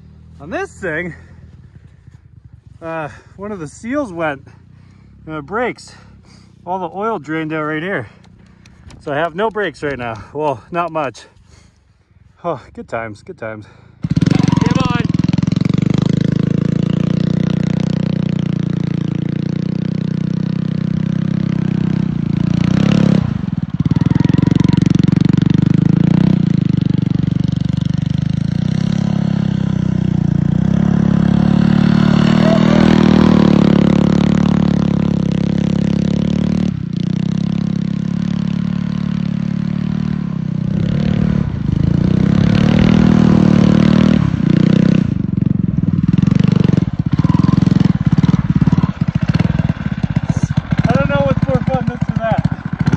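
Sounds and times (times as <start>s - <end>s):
small engine revving: 14.0s - 52.9s.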